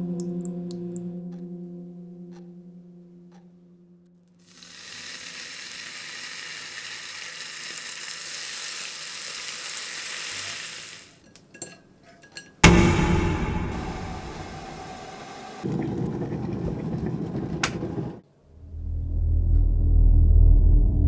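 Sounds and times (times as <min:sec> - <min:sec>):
bacon sizzling in a pan: 0:04.5 - 0:11.2
loud low rumble: 0:12.6 - 0:15.6, 0:18.6 - 0:21.0.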